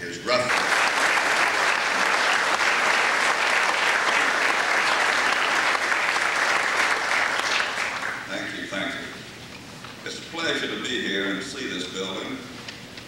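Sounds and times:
audience applauding: 0:00.3 - 0:08.4.

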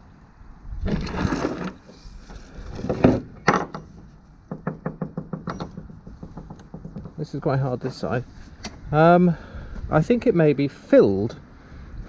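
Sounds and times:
rubbing and scraping: 0:00.9 - 0:08.6.

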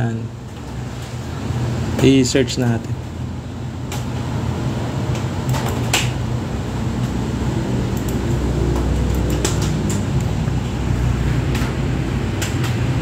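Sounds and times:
whirring with low hum: 0:00.0 - 0:13.0
computer mouse clicks: 0:07.9 - 0:10.3.

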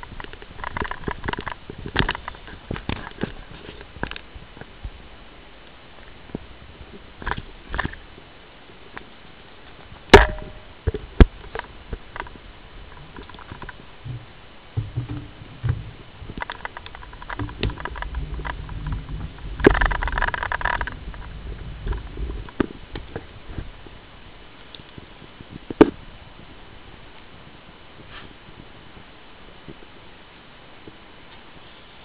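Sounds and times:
bike rattles and clicks: 0:00.0 - 0:04.7, 0:10.1 - 0:23.8
wind rumble on microphone: 0:00.0 - 0:32.0.

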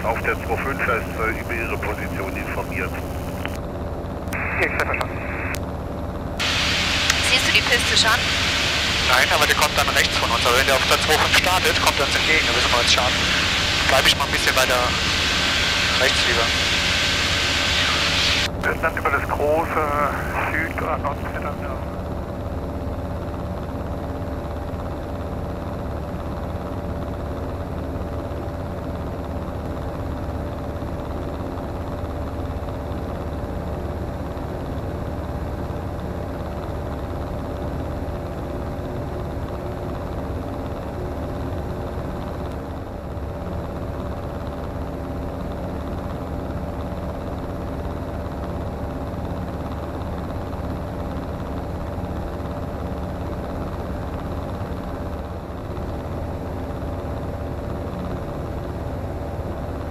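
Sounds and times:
microlight engine droning: 0:00.0 - 0:59.9
airflow noise: 0:06.4 - 0:21.9.

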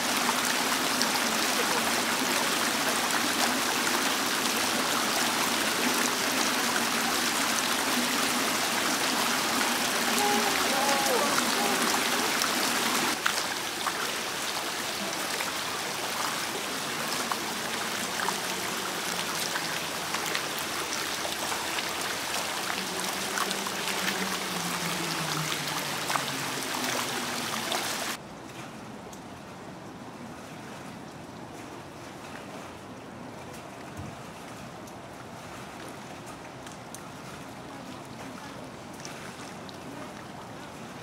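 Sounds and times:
fountain water splashing: 0:00.0 - 0:41.0
water drip ticks: 0:34.8 - 0:35.2, 0:35.8 - 0:37.2.

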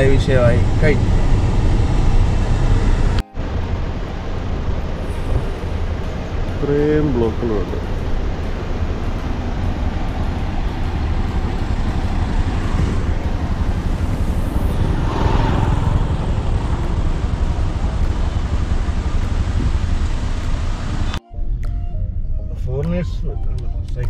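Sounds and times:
vehicle road and wind rumble: 0:00.0 - 0:24.0.

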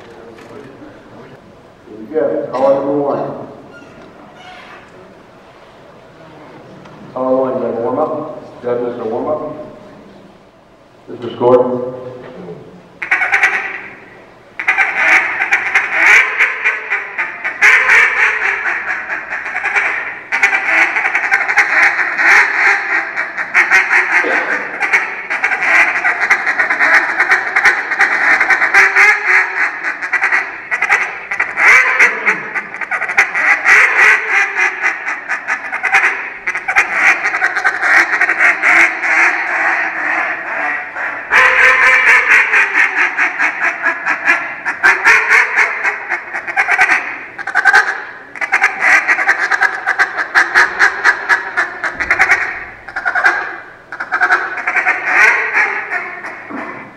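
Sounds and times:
duck call quacking: 0:13.0 - 0:56.9.

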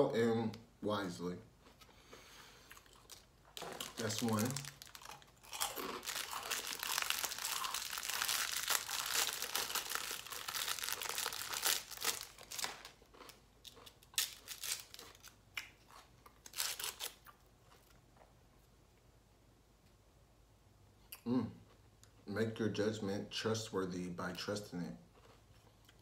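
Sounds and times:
cellophane wrapper crinkling: 0:02.8 - 0:15.4, 0:16.4 - 0:17.2
cookie cracking: 0:02.8 - 0:17.4.

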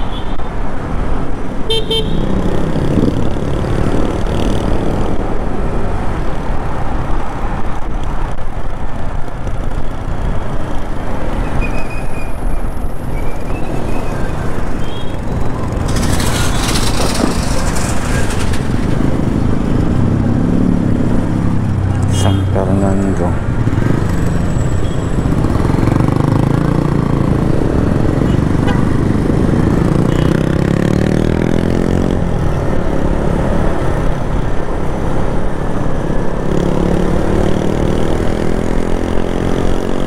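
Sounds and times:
motorcycle engine: 0:14.2 - 0:33.0.

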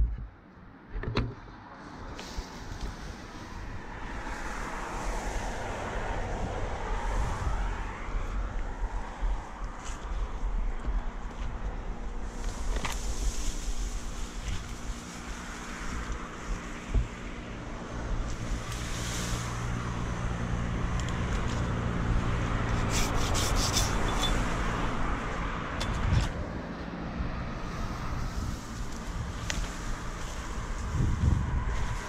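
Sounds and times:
branches and leaves rustling: 0:01.6 - 0:32.0
engine running: 0:09.4 - 0:32.0.

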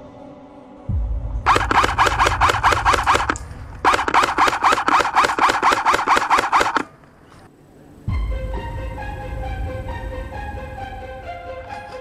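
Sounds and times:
airsoft rifle automatic fire: 0:01.5 - 0:06.9.

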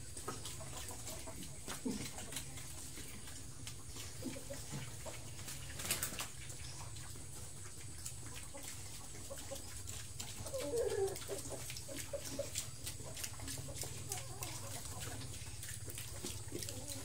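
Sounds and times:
piglets chewing and smacking: 0:00.0 - 0:17.0
piglet call: 0:10.4 - 0:11.6.

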